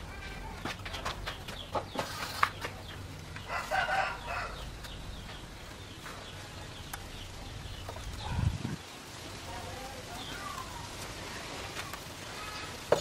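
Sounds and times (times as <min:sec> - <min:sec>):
rooster crowing: 0:03.5 - 0:04.6.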